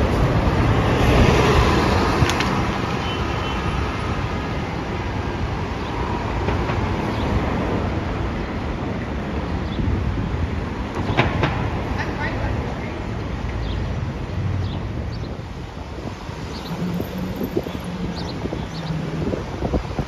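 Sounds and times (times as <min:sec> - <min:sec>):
street traffic: 0:00.0 - 0:20.0.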